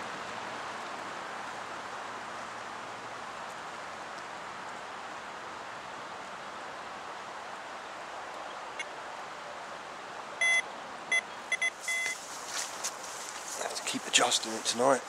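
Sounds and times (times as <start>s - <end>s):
steady background hiss: 0.0s - 15.0s
bite alarm beeps: 10.4s - 12.2s.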